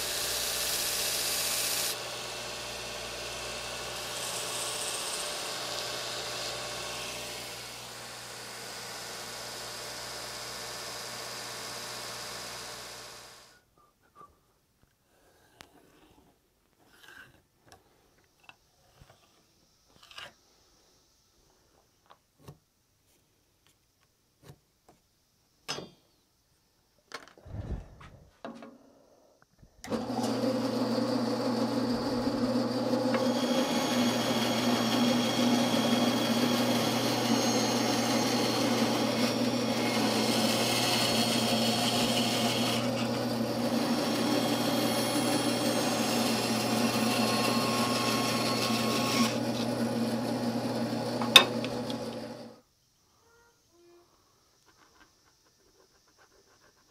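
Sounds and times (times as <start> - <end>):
bandsaw running: 0.0 - 13.4, 29.9 - 52.6.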